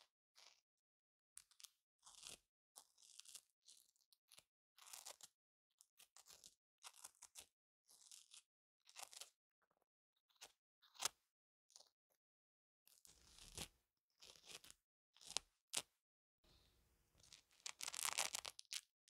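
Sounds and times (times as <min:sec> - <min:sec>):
velcro ripping: 0:17.2 - 0:18.9.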